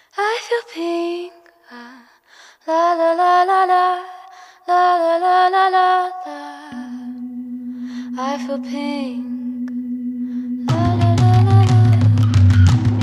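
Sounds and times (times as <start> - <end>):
woman singing held notes: 6.0 - 12.3.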